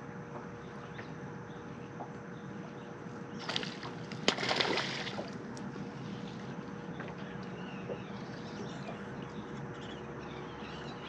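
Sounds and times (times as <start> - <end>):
faint steady hum: 0.0 - 11.0
sharp water slap: 3.4 - 5.3
fish splashing at water surface: 3.4 - 5.4.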